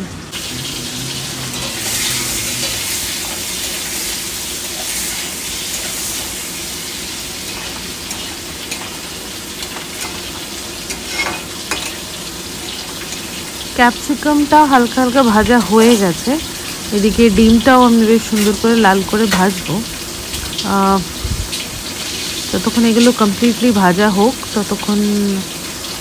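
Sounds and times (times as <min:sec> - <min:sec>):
oil sizzling in pans: 0:00.0 - 0:26.0
metal spatula clicking and scraping: 0:10.9 - 0:12.0.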